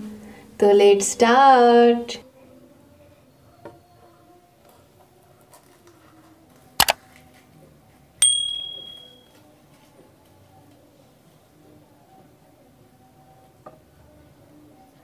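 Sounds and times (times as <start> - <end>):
bright bell ding: 8.2 - 9.3.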